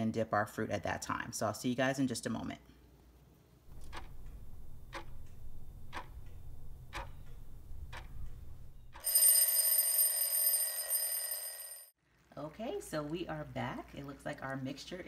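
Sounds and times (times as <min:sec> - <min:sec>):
alarm clock ticking: 0:03.7 - 0:11.9
alarm clock bell ringing: 0:09.0 - 0:12.0.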